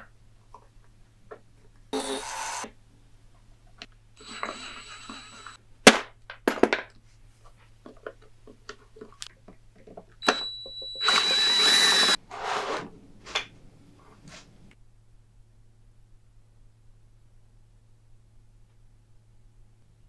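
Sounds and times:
power drill whining into metal: 4.2 - 5.6, 10.2 - 12.2.

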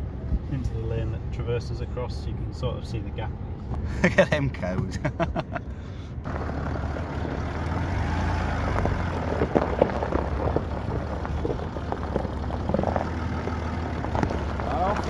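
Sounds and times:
engine running at low speed: 5.0 - 15.0
tyres crackling on loose stones: 7.2 - 15.0.

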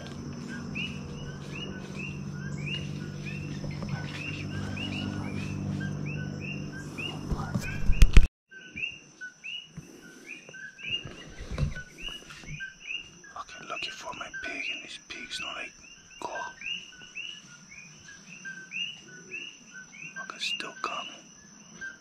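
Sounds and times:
high insect trill: 0.0 - 7.5, 8.6 - 22.0
low steady hum: 0.0 - 8.3
bird chirping: 0.0 - 22.0.

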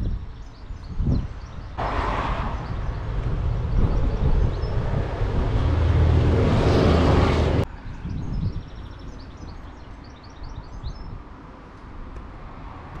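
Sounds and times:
road noise: 0.2 - 13.0
vehicle engine humming: 1.8 - 7.7.

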